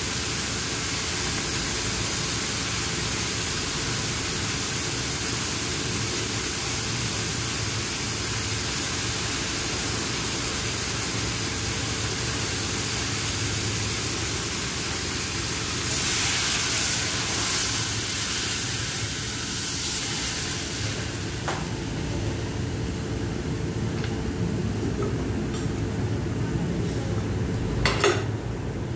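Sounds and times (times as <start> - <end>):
steady hissing background: 0.0 - 27.4
water poured into a wok: 0.8 - 21.3.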